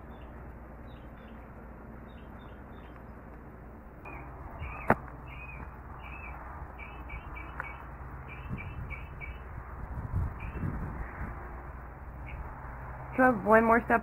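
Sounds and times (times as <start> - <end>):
small bird chirping: 0.0 - 3.2, 4.1 - 9.5, 10.2 - 10.9, 12.2 - 12.5.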